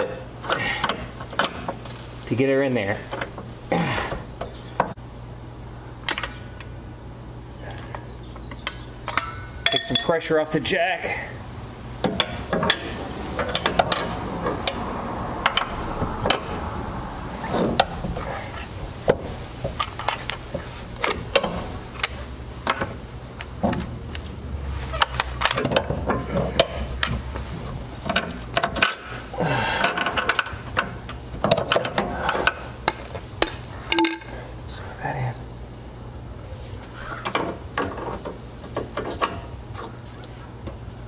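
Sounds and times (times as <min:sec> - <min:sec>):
metal clinks and knocks: 0:08.7 - 0:10.2
low hum: 0:11.3 - 0:28.6.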